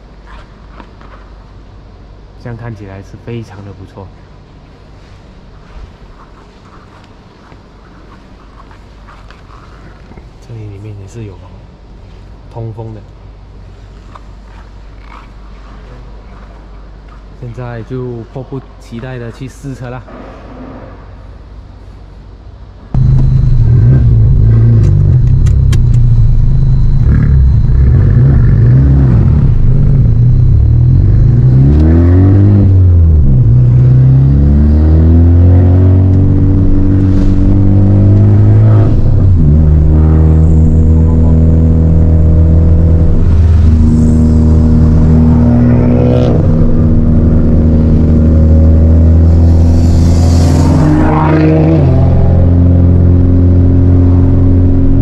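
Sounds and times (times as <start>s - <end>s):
car engine revving with upshifts: 23.0s - 55.0s.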